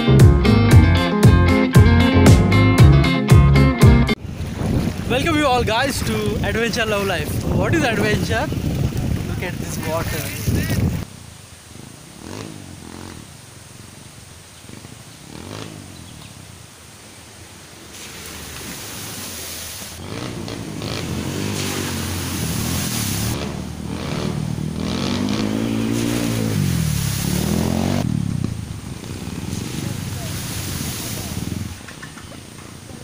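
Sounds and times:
motorcycle engines revving: 4.2s - 16.6s, 19.9s - 33.0s.

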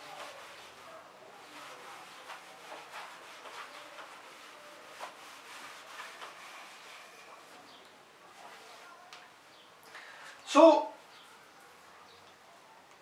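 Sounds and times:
eraser scrubbing whiteboard: 0.0s - 9.0s.

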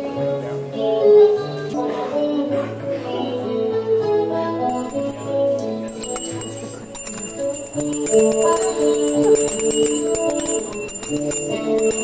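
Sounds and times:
handbells ringing: 4.7s - 12.0s.

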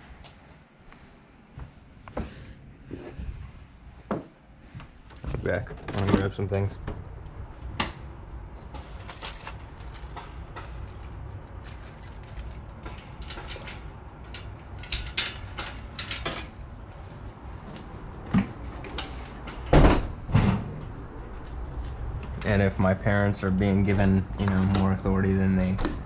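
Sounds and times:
keys jangling: 8.8s - 19.6s.

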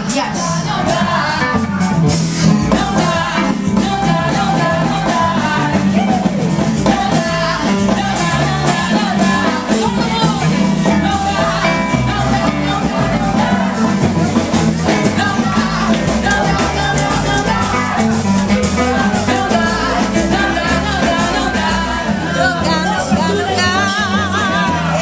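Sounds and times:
electric bass guitar: 0.0s - 25.0s
live rock band playing: 0.0s - 25.0s.

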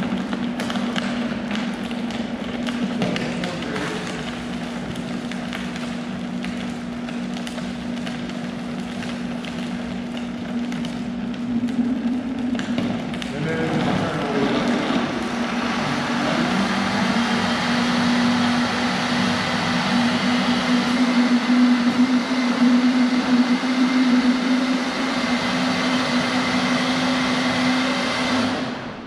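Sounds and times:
blender running: 2.6s - 5.6s, 11.5s - 29.0s.

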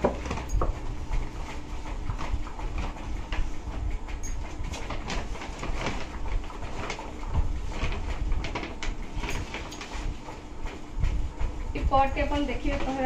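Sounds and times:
paper bag rustling and crinkling: 4.6s - 10.2s.

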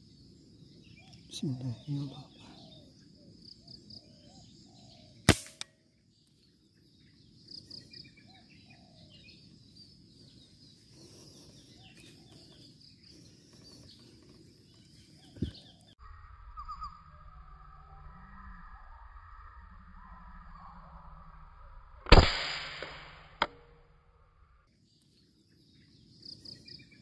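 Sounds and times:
birds chirping: 0.0s - 21.8s, 24.6s - 27.0s
air rifle shot: 5.3s - 5.6s, 22.0s - 23.6s
sharp click: 5.3s - 5.7s, 22.0s - 23.7s.

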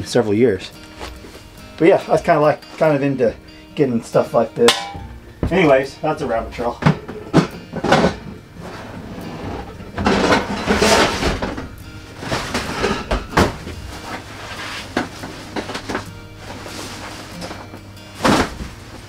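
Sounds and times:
quiet background music: 0.0s - 19.0s
plastic tubs scraping and rustling: 0.8s - 1.9s, 6.5s - 19.0s.

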